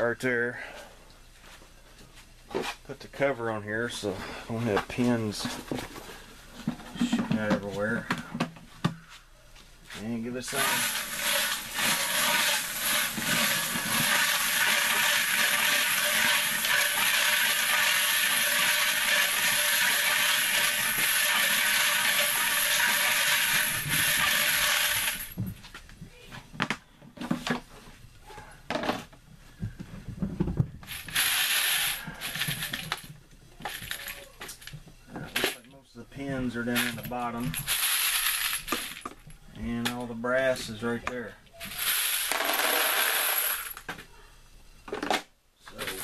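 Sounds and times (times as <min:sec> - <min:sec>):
knocks and clunks of handling: 0:04.7 - 0:09.0, 0:26.4 - 0:27.9, 0:28.7 - 0:30.8.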